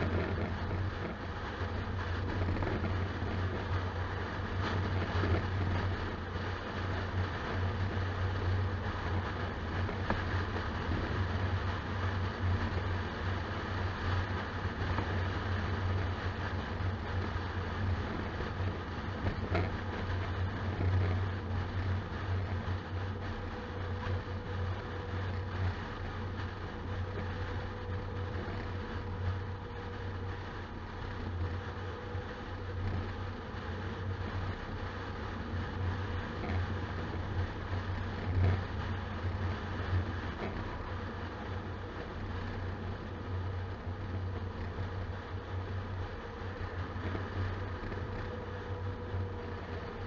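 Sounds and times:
faint steady whine: 0.0s - 50.0s
vehicle engine and tyre drone: 0.0s - 50.0s.

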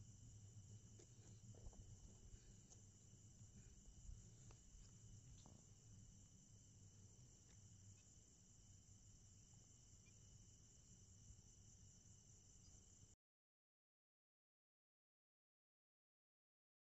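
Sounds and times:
crickets trilling: 0.0s - 13.2s.

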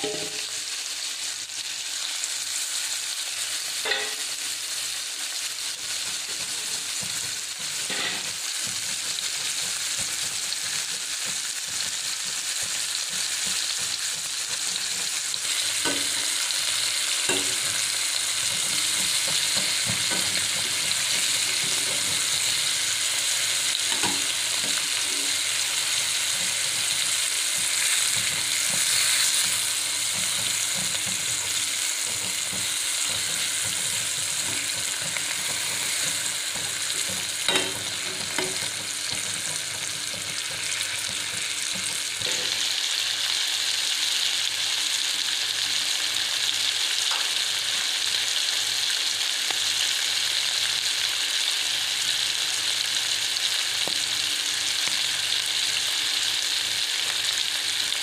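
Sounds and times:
metal spatula knocking and scraping pan: 0.0s - 0.5s, 3.9s - 4.3s, 5.9s - 42.6s
fish sizzling in hot oil: 0.0s - 58.0s.

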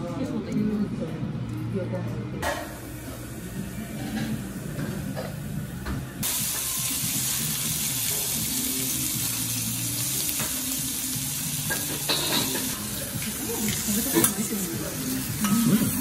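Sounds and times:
shellfish sizzling on a griddle: 6.2s - 16.0s.

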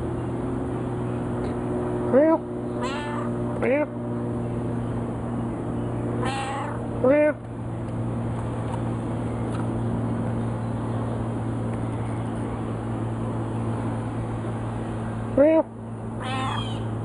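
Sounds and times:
steady low hum: 0.0s - 17.0s
cat meowing: 2.8s - 3.3s, 6.2s - 6.8s.

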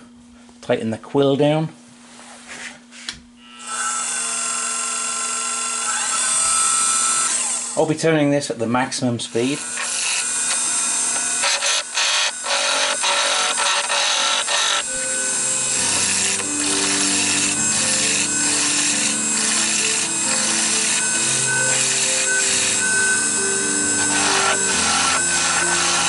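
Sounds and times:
lathe tool shaving wood: 3.6s - 7.9s, 9.3s - 26.0s
background music: 14.8s - 26.0s.

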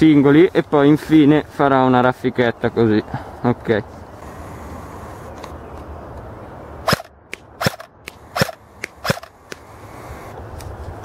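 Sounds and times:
airsoft rifle shots: 6.8s - 9.8s.

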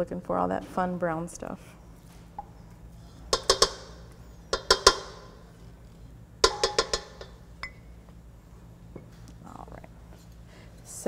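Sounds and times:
cup knocking on steel bowl: 3.3s - 3.9s, 4.5s - 5.3s, 6.4s - 7.4s.

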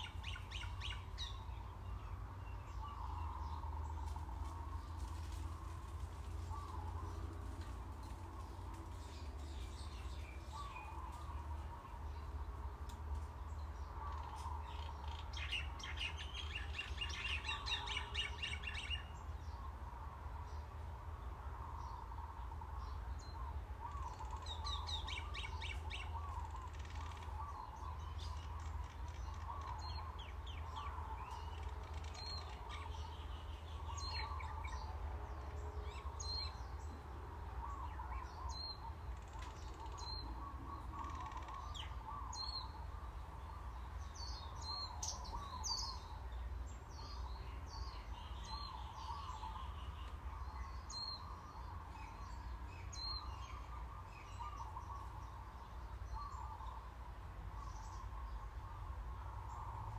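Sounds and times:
bird warbling calls: 23.3s - 36.6s, 37.6s - 46.2s, 47.1s - 56.9s.

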